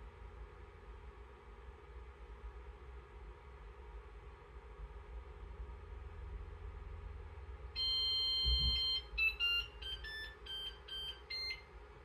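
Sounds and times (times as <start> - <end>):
electronic chime long tone: 7.8 - 10.7
short electronic beeps: 7.8 - 11.6.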